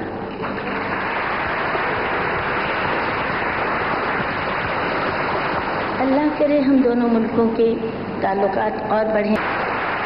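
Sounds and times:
audience applauding: 0.4s - 6.5s, 9.4s - 10.0s.

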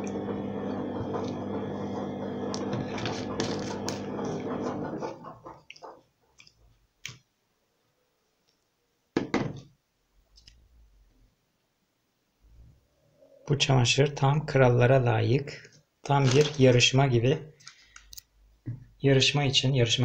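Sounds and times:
plastic bottles clicking and knocking: 16.2s - 16.8s.

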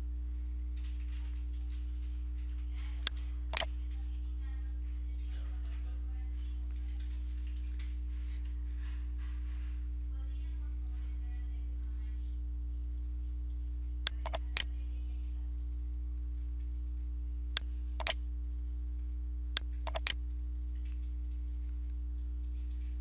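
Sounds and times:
low electrical hum: 0.0s - 23.0s
computer mouse clicks: 3.0s - 3.7s, 13.7s - 15.8s, 16.6s - 18.8s, 19.6s - 22.9s.

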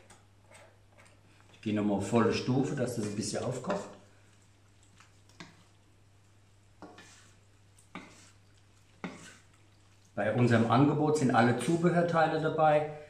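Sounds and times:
spatula scraping a wok: 0.1s - 1.3s, 5.0s - 5.8s, 6.7s - 9.6s.

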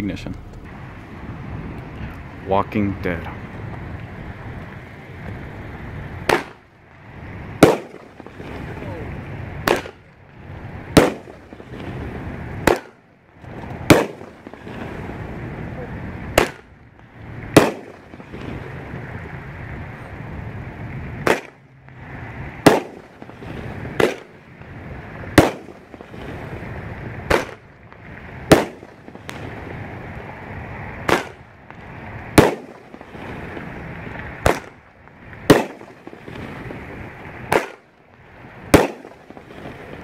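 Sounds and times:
firework rushing hiss: 0.0s - 40.0s
firework shell bursts: 6.2s - 6.7s, 7.6s - 8.8s, 9.6s - 10.1s, 10.9s - 12.0s, 12.6s - 13.0s, 13.6s - 15.1s, 16.3s - 16.8s, 17.5s - 18.6s, 21.2s - 22.0s, 22.6s - 24.6s, 25.3s - 26.6s, 27.3s - 29.8s, 31.0s - 34.8s, 35.4s - 37.9s, 38.7s - 40.0s.

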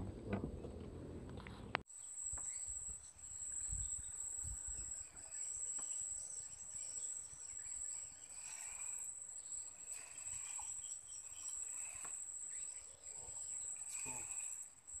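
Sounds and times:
faint insect chirps: 1.9s - 15.0s
insects trilling: 1.9s - 15.0s.

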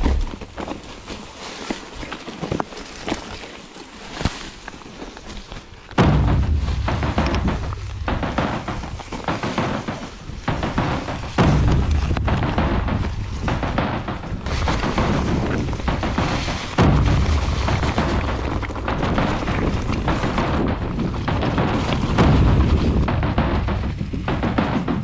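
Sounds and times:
bike rattling on rocky trail: 0.0s - 25.0s
wind buffeting microphone: 6.0s - 25.0s.

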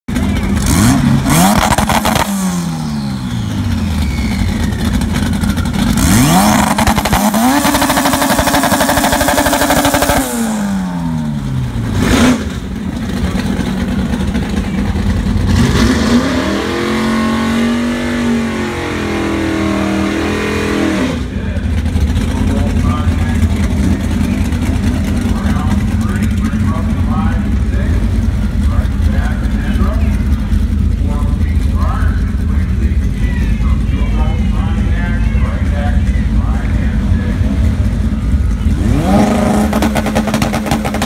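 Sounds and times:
car engine revving: 0.1s - 41.0s
spinning tyres rushing: 0.1s - 41.0s.

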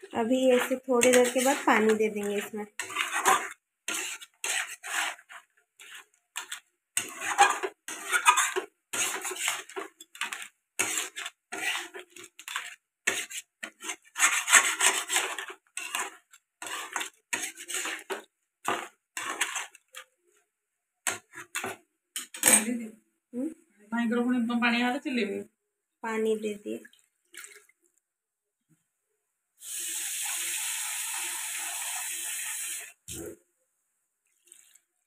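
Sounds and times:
metal spatula scraping pan: 0.0s - 20.1s, 21.1s - 22.4s.

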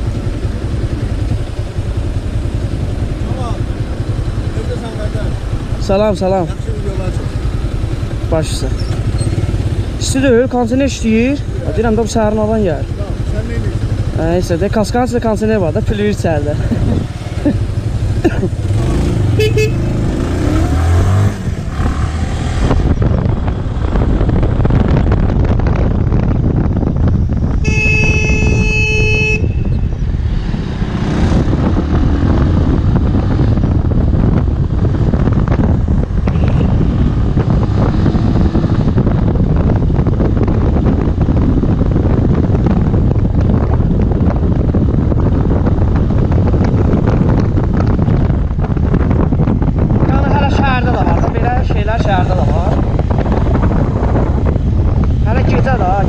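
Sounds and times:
motorcycle engine: 0.0s - 56.0s
vehicle horn: 19.3s - 20.0s, 27.6s - 29.9s.

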